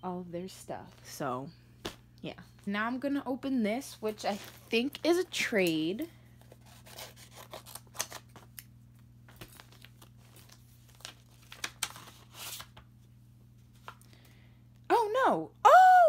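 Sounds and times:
package tearing and rustling: 6.4 - 12.9.

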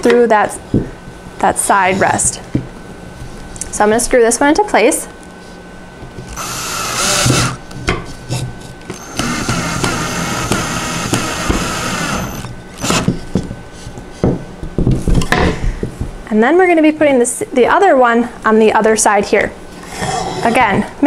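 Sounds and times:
cordless drill driving screw into wood: 6.3 - 7.6, 8.9 - 13.2.

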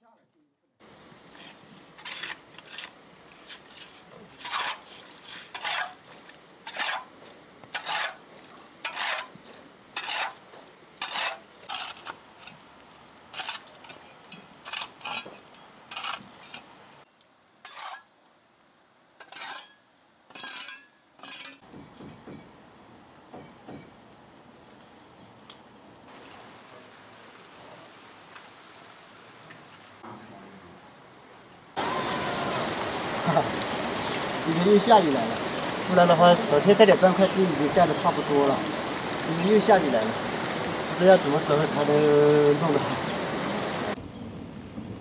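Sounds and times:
shovel scraping concrete: 1.4 - 6.0, 6.7 - 7.1, 7.8 - 8.2, 8.8 - 9.4, 10.0 - 12.6, 13.3 - 16.6, 17.6 - 18.0, 19.2 - 21.6.

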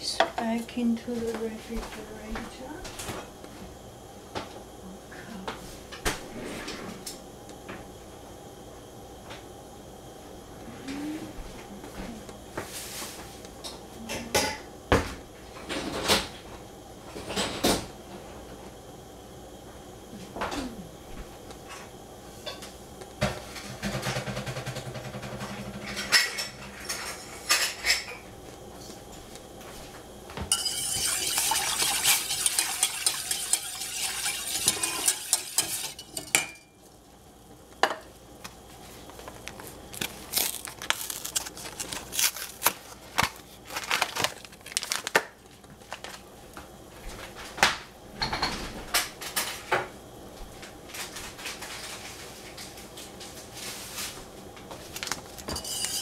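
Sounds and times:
whisk scraping metal saucepan: 30.5 - 36.6, 55.5 - 56.0
fast steady whisking: 30.5 - 36.7, 55.6 - 56.0.

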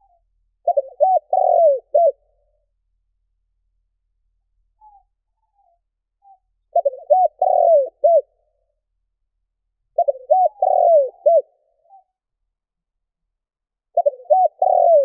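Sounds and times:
dove cooing: 0.0 - 2.4, 6.3 - 8.3, 10.0 - 12.1, 13.9 - 15.0.

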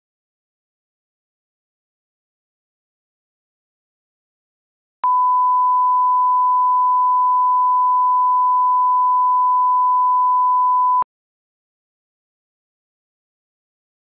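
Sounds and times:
sine-wave line-up tone: 5.0 - 11.0.

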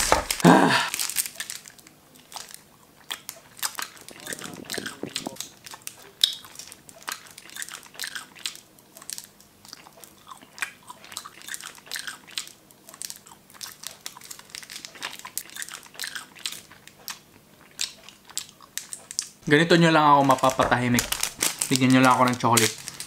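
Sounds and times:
person chewing crunchily: 0.0 - 19.5, 20.2 - 23.0
wet mouth sounds: 2.2 - 19.4.

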